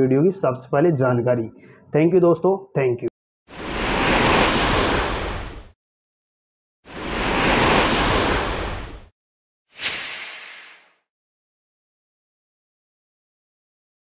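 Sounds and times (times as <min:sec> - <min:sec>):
whoosh sound effects: 0:09.7 - 0:11.0.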